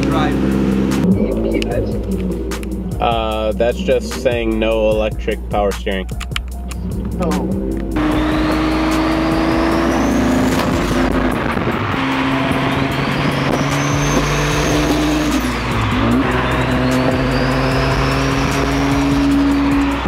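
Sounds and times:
car engine drone: 0:00.0 - 0:20.0
road noise: 0:00.0 - 0:20.0
turbo whistle: 0:08.0 - 0:11.3, 0:11.9 - 0:20.0.

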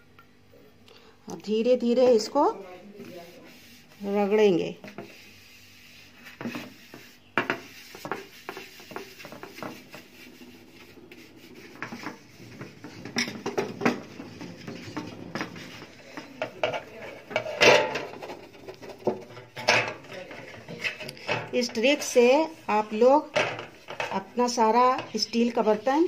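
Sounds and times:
cotton rubbing on steel tray: 0:02.6 - 0:26.0
metal tray clattering: 0:11.8 - 0:22.4, 0:23.2 - 0:26.0.

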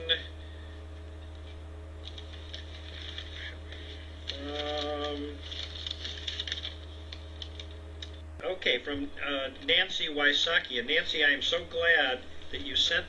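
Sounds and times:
paper rustling and crinkling: 0:01.4 - 0:07.8
person humming: 0:04.3 - 0:05.4.

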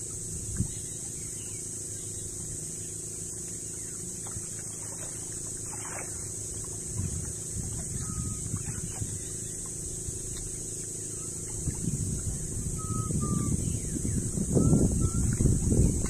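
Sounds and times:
boat motor running: 0:00.0 - 0:16.0
soft knocks and splashes: 0:04.2 - 0:12.5.

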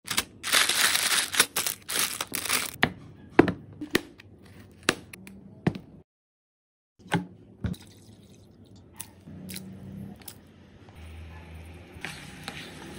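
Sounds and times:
crinkling tearing rustle: 0:00.1 - 0:02.8.

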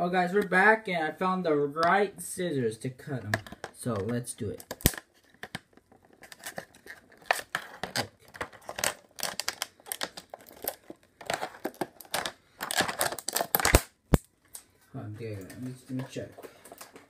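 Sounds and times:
stiff plastic crinkling: 0:03.4 - 0:13.8
scissors cutting plastic: 0:06.2 - 0:14.2.

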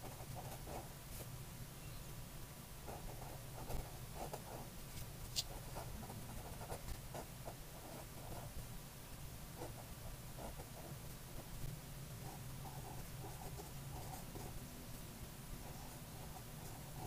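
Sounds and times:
felt pen scratching on paper: 0:00.0 - 0:00.9, 0:02.9 - 0:08.6, 0:09.6 - 0:11.6, 0:12.2 - 0:14.6, 0:15.6 - 0:17.0.

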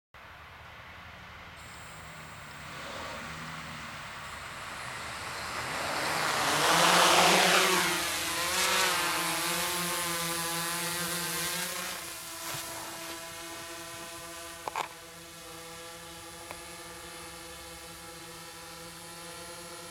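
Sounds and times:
rushing prop-wash noise: 0:01.6 - 0:13.9
quadcopter motors humming: 0:01.6 - 0:19.9.

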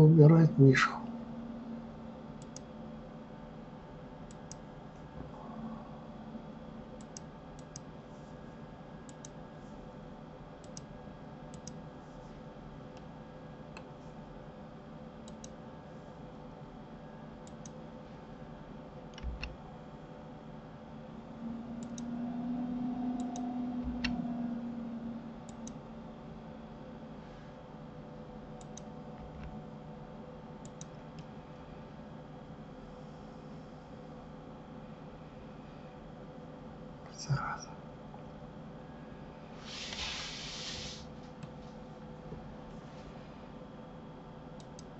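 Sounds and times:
steady electrical hum: 0:00.0 - 0:44.9
low droning tone: 0:00.7 - 0:02.4, 0:05.2 - 0:06.7, 0:20.9 - 0:26.6.

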